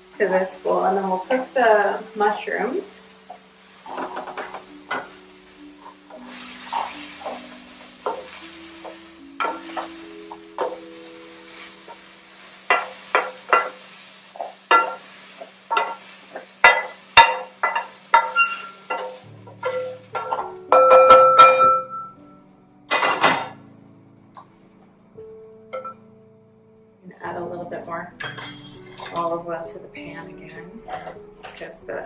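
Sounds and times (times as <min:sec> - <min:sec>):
soft background music: 0:00.0 - 0:32.0
wooden spoon knocking on a pan: 0:04.0 - 0:05.2, 0:08.0 - 0:10.9, 0:15.7 - 0:21.9.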